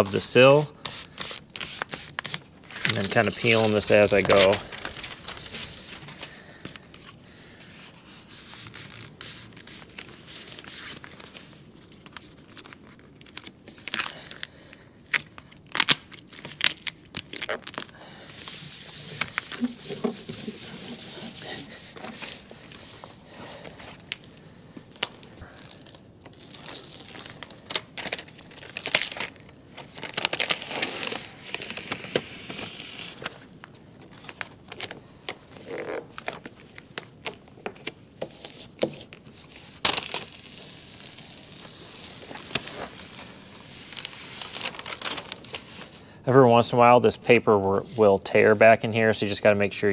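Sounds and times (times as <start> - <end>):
hands rubbing tape: 0.8 - 6.8, 7.6 - 11.5, 17.2 - 23.2, 30.3 - 33.4
paper backing crackling and tearing: 1.0 - 46.0.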